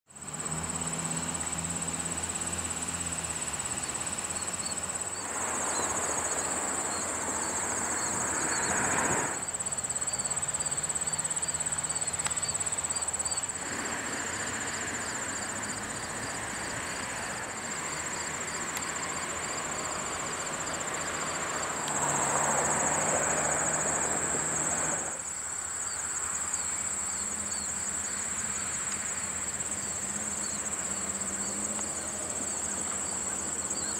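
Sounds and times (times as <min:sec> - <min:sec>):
high-pitched insect chorus: 0:00.1 - 0:33.9
loud rushing noise: 0:05.2 - 0:09.4.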